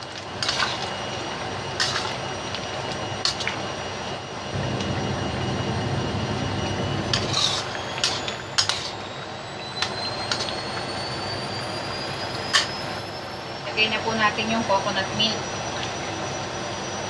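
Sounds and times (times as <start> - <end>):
spatula scraping a wok: 0.0 - 3.5, 7.1 - 9.2, 9.8 - 10.7, 12.4 - 12.9
stove rushing noise: 0.0 - 17.0.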